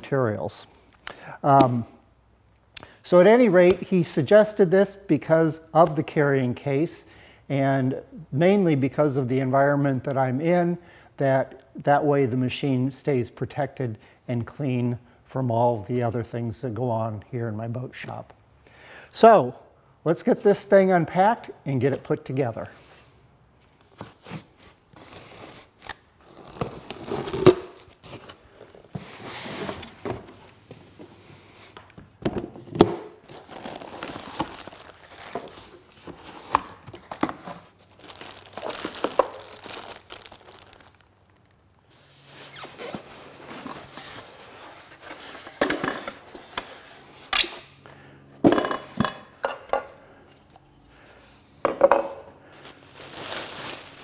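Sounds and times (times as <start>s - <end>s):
plastic wrap crinkling and tearing: 24.9s - 28.9s, 33.2s - 36.6s, 37.7s - 41.6s, 52.5s - 54.0s.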